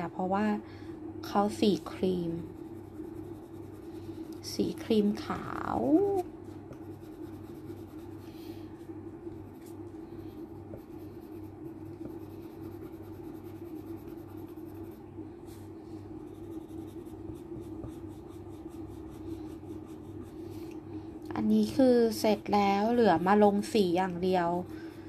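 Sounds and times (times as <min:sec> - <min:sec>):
steady low hum: 0:00.0 - 0:25.0
pencil scratching on paper: 0:02.4 - 0:04.8, 0:06.8 - 0:08.2, 0:10.3 - 0:15.0, 0:16.2 - 0:20.4.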